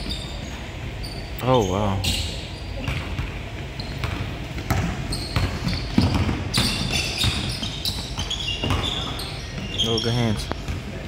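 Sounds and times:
basketball bouncing on wooden floor: 2.8s - 9.9s.

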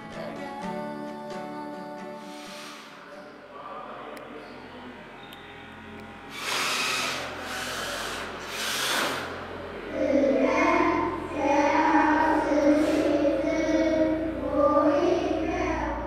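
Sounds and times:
short rushes of hiss: 2.2s - 3.0s
children singing: 9.9s - 16.0s.

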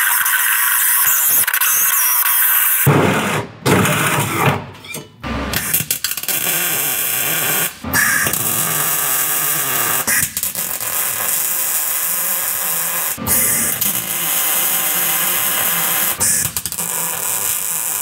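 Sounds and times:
drilling: 5.5s - 18.0s
welding arc crackling hiss: 5.6s - 18.0s.

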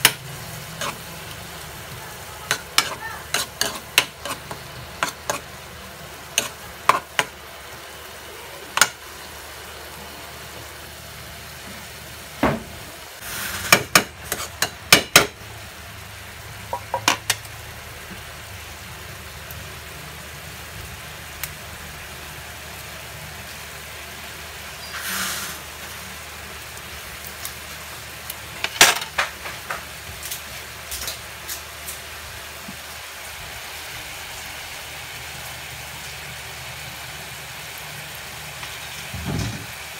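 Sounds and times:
spatula scraping a wok: 0.0s - 1.4s, 2.5s - 5.6s, 6.2s - 7.3s, 13.2s - 14.8s
food sizzling in a wok: 0.0s - 39.9s
brief loud hiss: 13.2s - 13.8s, 24.8s - 25.7s.

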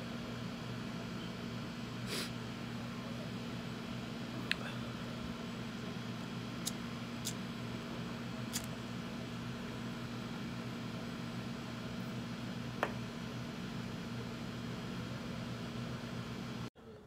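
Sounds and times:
lighter clicking: 8.5s - 8.7s.

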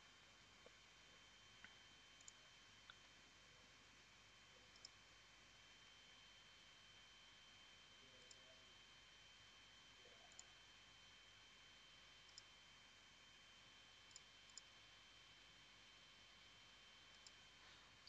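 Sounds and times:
computer mouse clicks: 2.2s - 3.0s, 4.7s - 5.0s, 8.2s - 8.4s, 10.3s - 10.6s, 12.3s - 12.5s, 14.1s - 14.7s, 17.1s - 17.4s.

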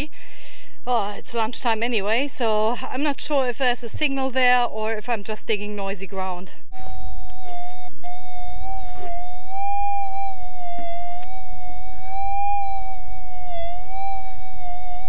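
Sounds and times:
metal detector wavering hum: 6.7s - 15.0s.

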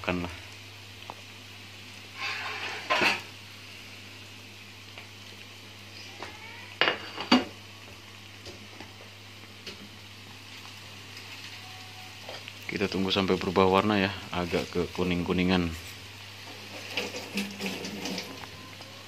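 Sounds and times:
food deep-frying in oil: 0.0s - 19.0s
metal spatula scraping a wok: 2.1s - 3.1s.

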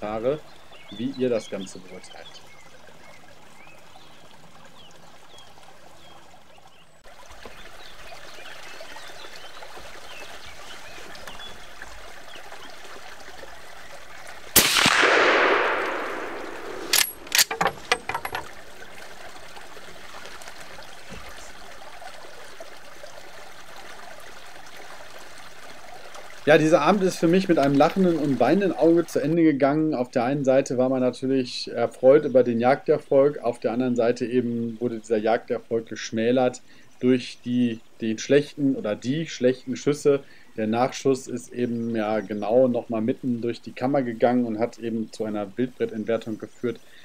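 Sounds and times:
rifle shot: 14.6s - 17.6s
sharp clicks: 14.6s - 18.5s.

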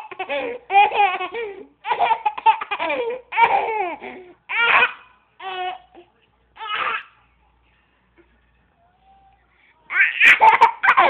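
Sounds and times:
baby giggling: 0.0s - 5.8s, 9.9s - 11.0s.

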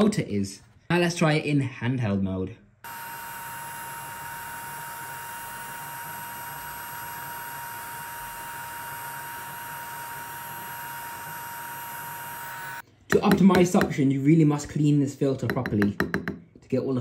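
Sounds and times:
small vacuum cleaner whining: 2.8s - 12.8s.

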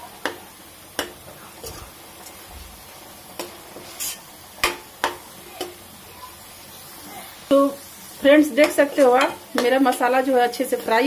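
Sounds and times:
faint sizzle of frying: 0.0s - 11.0s
metal spoon scraping paste in pan: 3.4s - 4.3s.

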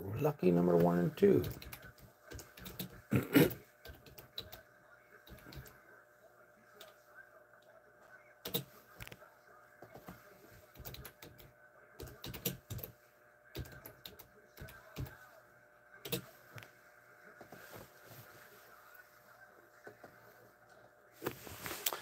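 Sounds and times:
computer keyboard typing: 0.7s - 3.0s, 3.8s - 4.6s, 8.4s - 8.7s, 10.7s - 12.9s, 13.5s - 15.2s, 16.0s - 16.2s.

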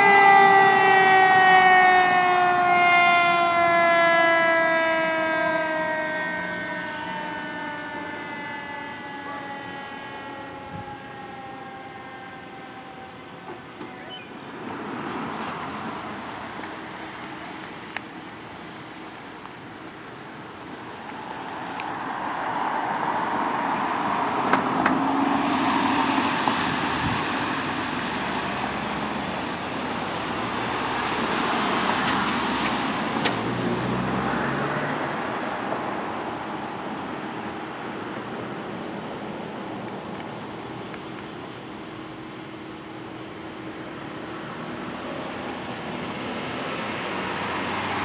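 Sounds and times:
passing vehicle noise: 0.0s - 48.0s
car driving past: 46.0s - 48.0s.

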